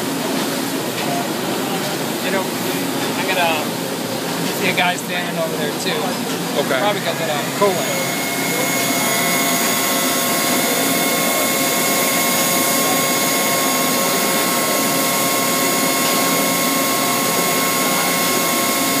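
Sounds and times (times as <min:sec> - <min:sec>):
constant high whine: 0:06.2 - 0:19.0
lathe whirring hiss: 0:06.5 - 0:19.0.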